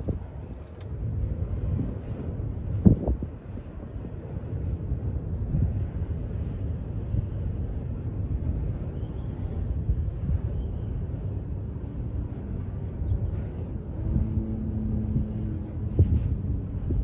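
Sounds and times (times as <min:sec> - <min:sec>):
train wheels rumbling on rails: 0:00.0 - 0:17.0.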